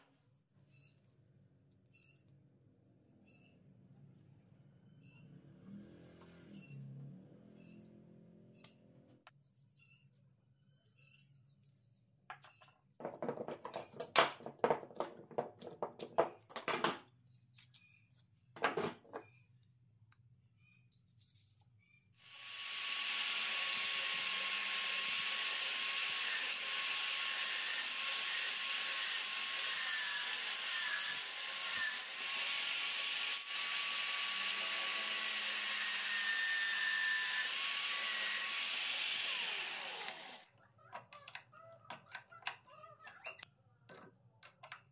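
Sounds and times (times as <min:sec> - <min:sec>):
drill press boring plywood: 0:22.3 - 0:40.4.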